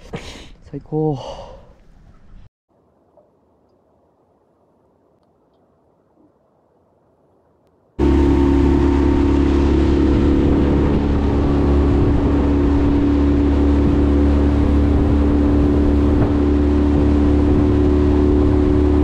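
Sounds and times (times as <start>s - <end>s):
wind: 0.0s - 19.0s
outboard motor running: 8.0s - 19.0s.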